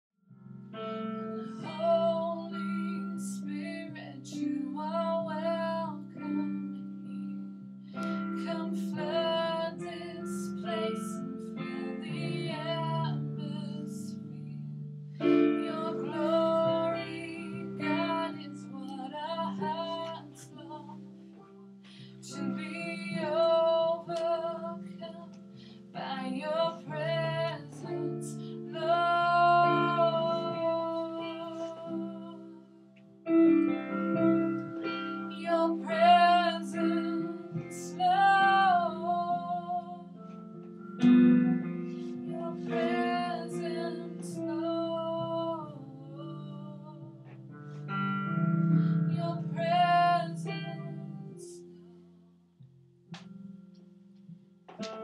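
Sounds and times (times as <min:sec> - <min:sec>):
electronic keyboard chords: 0:00.5 - 0:51.4, 0:53.1 - 0:55.0
woman singing: 0:01.4 - 0:14.6, 0:15.2 - 0:21.1, 0:22.1 - 0:32.7, 0:34.2 - 0:40.2, 0:42.0 - 0:47.4, 0:49.0 - 0:51.7.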